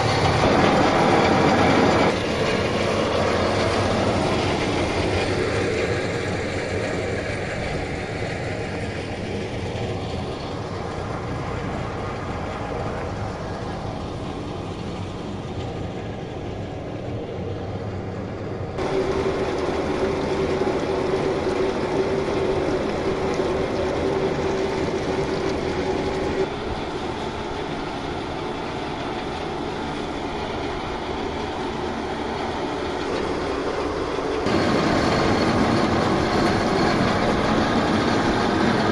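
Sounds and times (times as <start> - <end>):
machinery rattling: 0.0 - 16.9, 18.8 - 38.9
water pouring into tank: 18.8 - 26.5.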